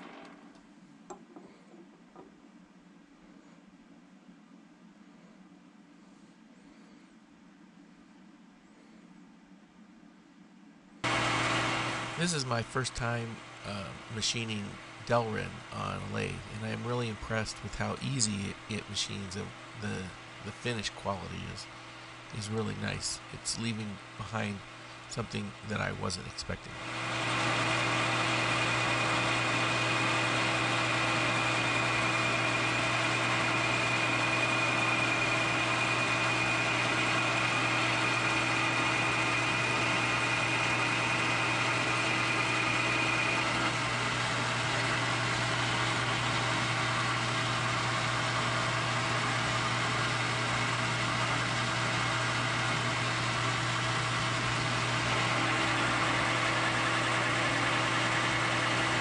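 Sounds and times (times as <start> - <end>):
lathe cutting tool turning: 11.0 - 12.4, 26.7 - 59.0
metal lathe humming: 11.0 - 20.6, 26.7 - 59.0.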